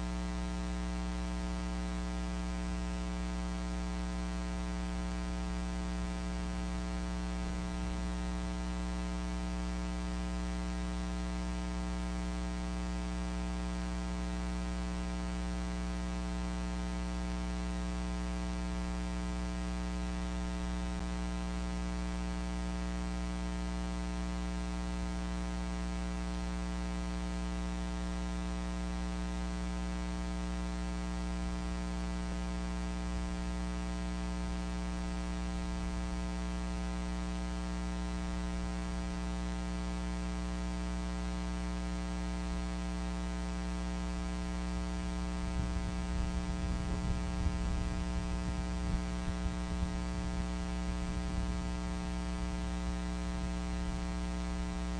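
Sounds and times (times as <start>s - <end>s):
electrical mains hum: 44.0s - 54.9s.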